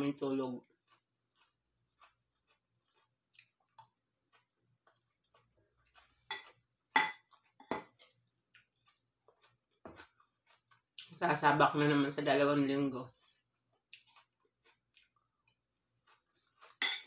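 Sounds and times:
fork clinking against bowl: 0:06.3 - 0:08.0, 0:16.8 - 0:17.0.

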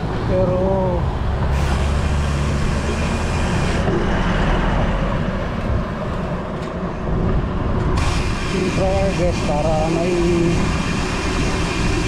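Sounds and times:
vehicle engine running: 0:00.0 - 0:12.0
hiss: 0:08.0 - 0:12.0.

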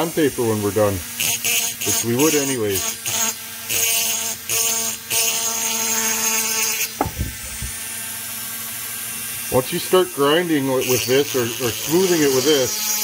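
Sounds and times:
grinding hiss: 0:00.0 - 0:13.0
rotary tool whining: 0:00.0 - 0:13.0
soft knocks: 0:07.0 - 0:07.8.

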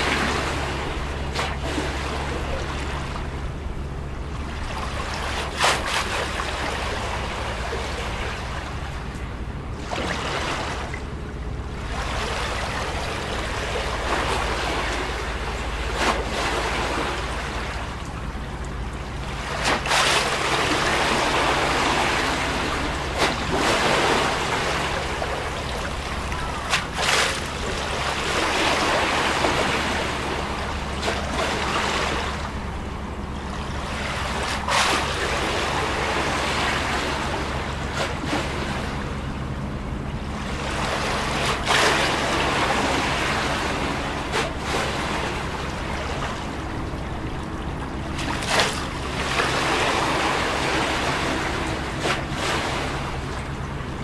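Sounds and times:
waves lapping against concrete wall: 0:00.0 - 0:54.0
water slapping against wall: 0:04.6 - 0:07.4, 0:19.4 - 0:32.7, 0:40.8 - 0:53.5.

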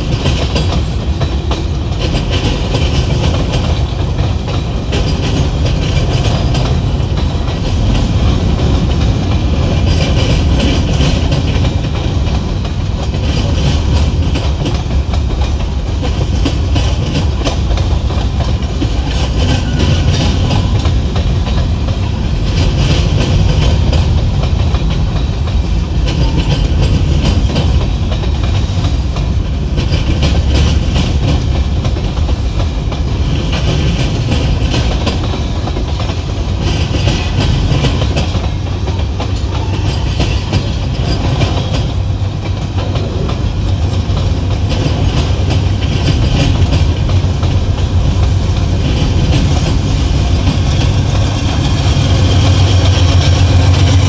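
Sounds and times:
train rumble: 0:00.0 - 0:54.0
train wheels clattering over rail joints: 0:00.0 - 0:54.0.

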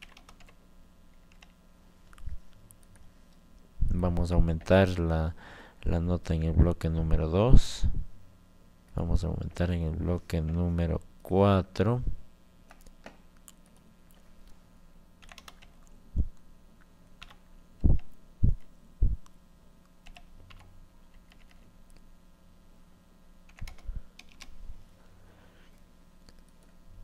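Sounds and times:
computer keyboard keystrokes: 0:00.0 - 0:00.6, 0:01.2 - 0:01.6, 0:15.2 - 0:15.9, 0:17.2 - 0:17.4, 0:20.0 - 0:21.7, 0:23.5 - 0:24.5.

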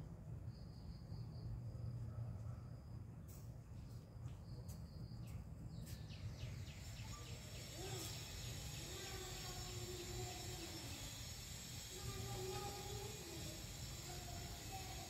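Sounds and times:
insects chirping: 0:00.2 - 0:03.2, 0:03.8 - 0:15.0
steady high buzz: 0:05.8 - 0:15.0.

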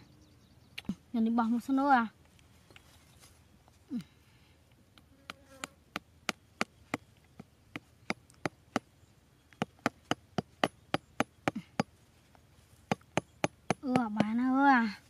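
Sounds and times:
cleaver tapping wooden peg: 0:12.9 - 0:14.4.

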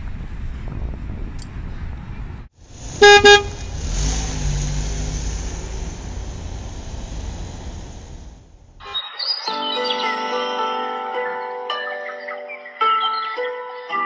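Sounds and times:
city street traffic: 0:00.0 - 0:09.6
car horn honking: 0:03.0 - 0:03.8.

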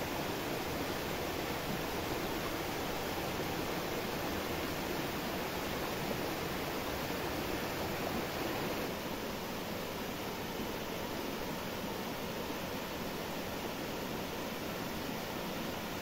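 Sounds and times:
waterfall rushing and splashing: 0:00.0 - 0:09.0.

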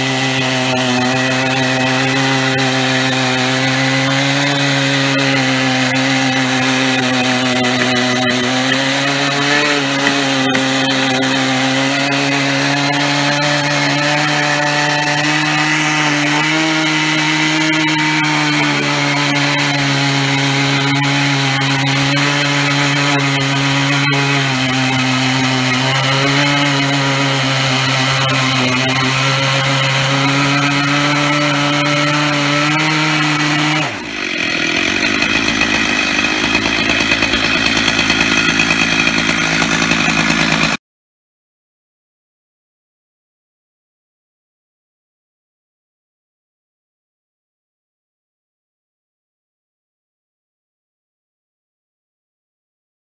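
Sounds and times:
chainsaw cutting through log: 0:00.0 - 0:40.8.

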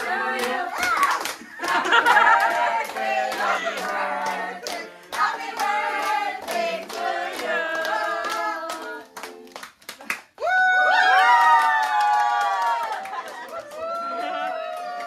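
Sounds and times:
people singing: 0:00.0 - 0:09.8
people clapping in time: 0:00.0 - 0:15.0.

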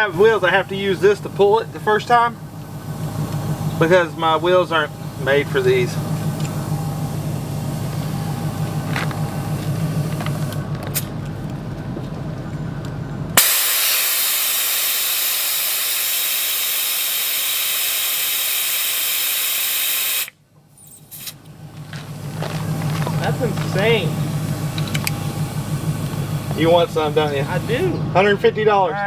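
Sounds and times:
vehicle engine idling: 0:00.0 - 0:29.0
air hissing from tire valve: 0:01.3 - 0:11.1, 0:13.4 - 0:20.4, 0:22.1 - 0:28.0.

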